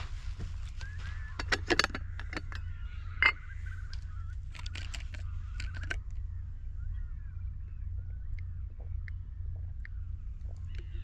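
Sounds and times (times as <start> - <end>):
camping gear clicking and rattling: 0.0 - 6.1
steady low rumble: 0.0 - 11.0.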